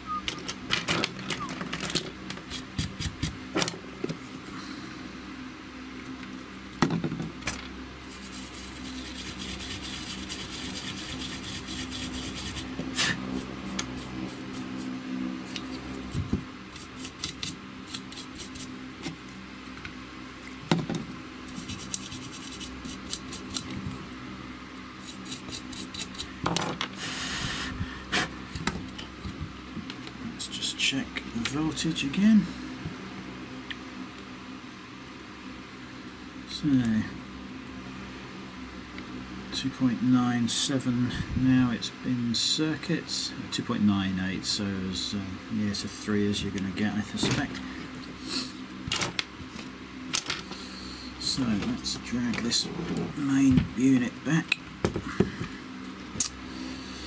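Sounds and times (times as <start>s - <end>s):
low steady hum: 0.0s - 57.0s
hand tool scraping circuit board: 8.1s - 14.9s, 21.5s - 23.7s.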